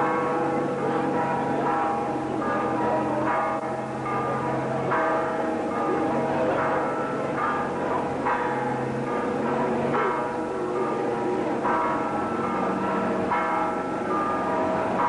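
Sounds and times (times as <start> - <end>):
church bells ringing: 0.0 - 15.0.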